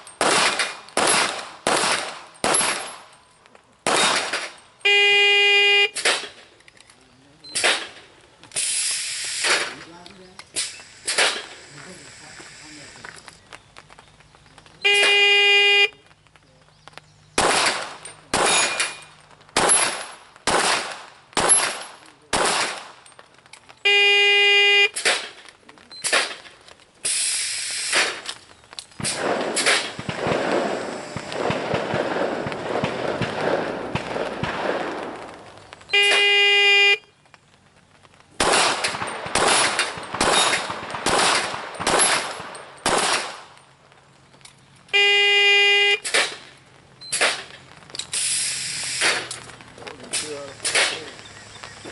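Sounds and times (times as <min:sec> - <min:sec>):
sharp pistol shots: 0:00.0 - 0:03.2, 0:03.8 - 0:04.6, 0:05.9 - 0:06.5, 0:07.5 - 0:09.9, 0:10.6 - 0:11.6, 0:17.4 - 0:23.0, 0:24.9 - 0:25.4, 0:26.0 - 0:27.2, 0:27.8 - 0:28.3, 0:29.0 - 0:35.3, 0:38.4 - 0:43.6, 0:46.0 - 0:46.5, 0:47.1 - 0:47.6, 0:48.9 - 0:49.4, 0:50.1 - 0:51.1
dense crackling noise: 0:00.0 - 0:51.9.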